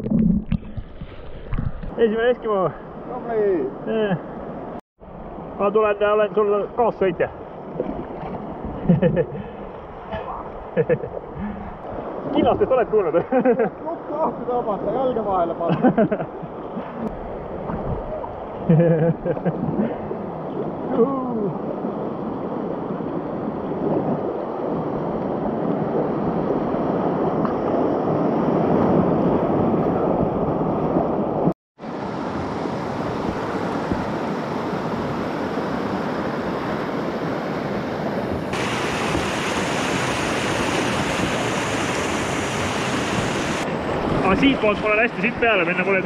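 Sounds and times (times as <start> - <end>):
wind on microphone: 0.0 - 2.0, 16.4 - 45.2
river rapids rushing and splashing: 31.8 - 46.0.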